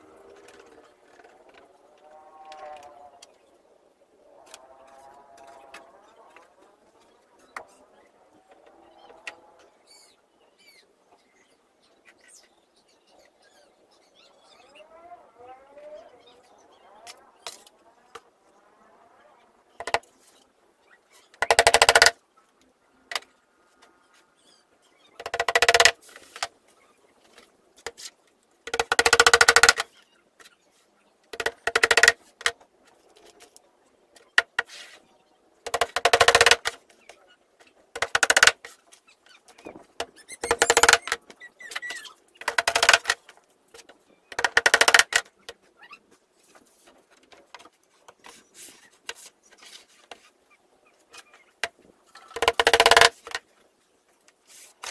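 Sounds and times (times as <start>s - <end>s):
hammer driving nails into wood: 21.4s - 22.1s, 28.7s - 29.8s, 35.7s - 36.8s, 42.4s - 43.1s, 44.4s - 45.2s.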